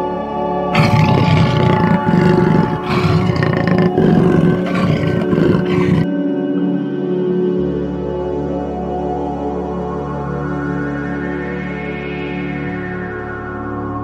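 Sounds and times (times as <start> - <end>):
jaguar roaring: 0.8 - 6.1.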